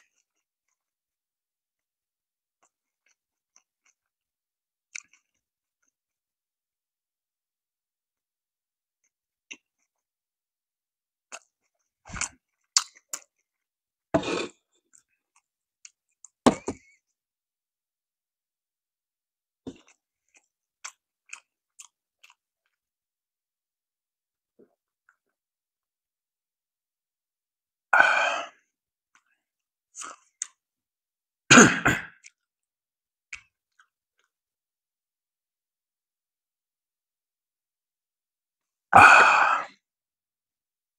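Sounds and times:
throaty throat clearing sounds: 0:31.5 - 0:32.3.

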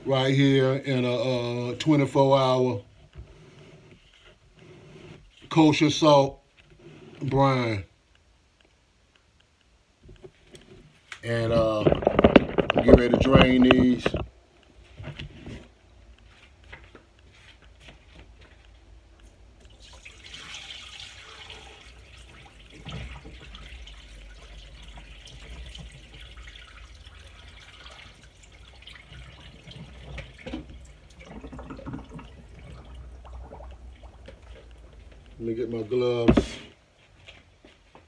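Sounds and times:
water trickling into a sink: 0:19.6 - 0:35.4.

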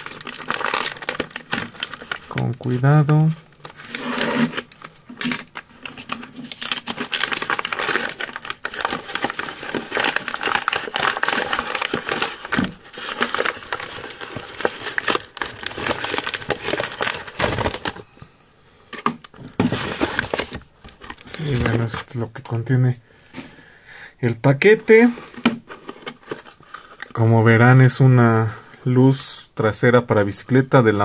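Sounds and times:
paper envelope crinkling and tearing: 0:00.0 - 0:18.1, 0:19.6 - 0:22.1.

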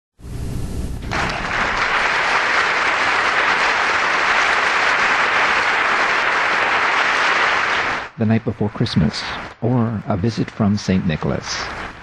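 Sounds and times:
audience applauding: 0:01.0 - 0:08.2.

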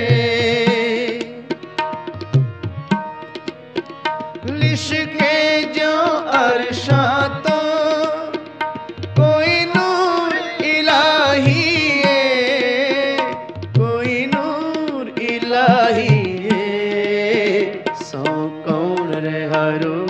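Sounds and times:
tabla strokes: 0:00.0 - 0:05.7
harmonium held notes: 0:00.0 - 0:20.0.

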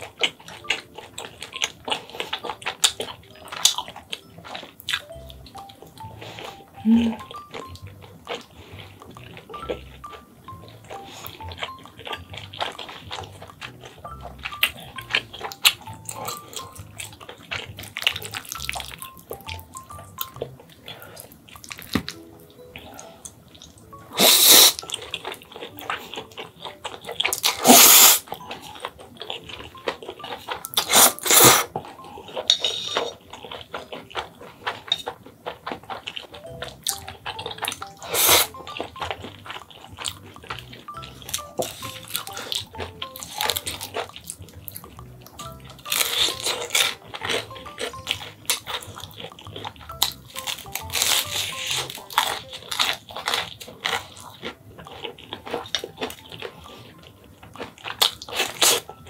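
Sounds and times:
music playing: 0:00.0 - 0:59.0
wet chewing: 0:00.0 - 0:59.0
noodle slurping: 0:24.1 - 0:25.0, 0:27.2 - 0:28.8, 0:30.7 - 0:31.8, 0:37.3 - 0:38.7.

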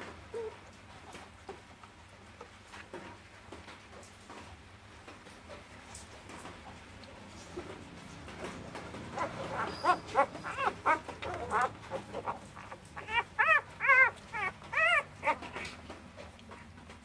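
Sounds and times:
puppies squealing and whimpering: 0:08.5 - 0:16.3.

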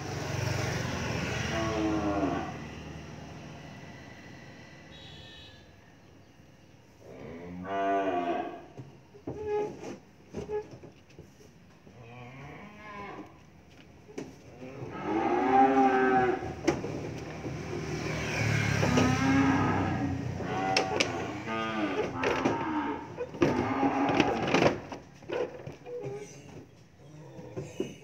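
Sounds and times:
calves bawling: 0:18.8 - 0:28.0.

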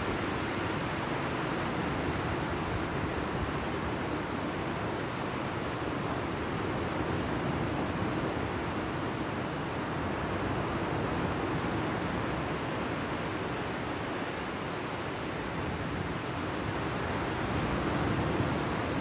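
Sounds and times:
sea surf breaking on beach: 0:00.0 - 0:19.0
wind: 0:00.0 - 0:19.0.

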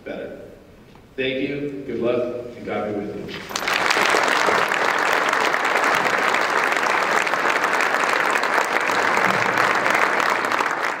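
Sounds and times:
audience applauding: 0:03.4 - 0:11.0.

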